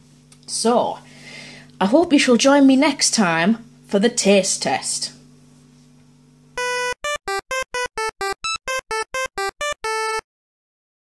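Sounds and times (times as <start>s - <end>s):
faint room hum: 0.0s - 6.6s
synthesizer jingle: 6.6s - 10.2s.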